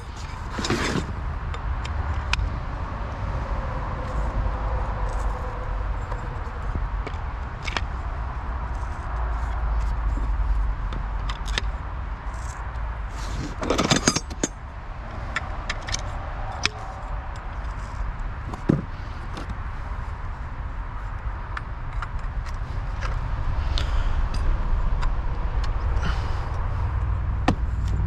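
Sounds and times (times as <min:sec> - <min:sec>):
steady low rumble: 0:00.0 - 0:28.0
rattling clicks: 0:13.4 - 0:14.6.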